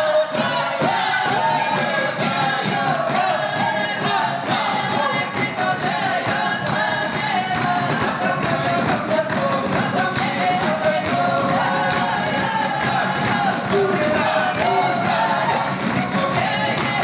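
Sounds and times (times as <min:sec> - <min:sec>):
folk choir singing: 0:00.0 - 0:17.0.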